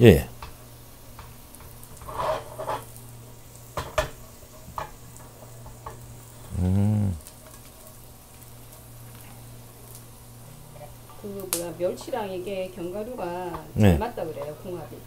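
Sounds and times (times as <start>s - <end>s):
seeds sizzling in oil: 0.0s - 15.0s
scrapes and taps on pan: 3.8s - 5.0s.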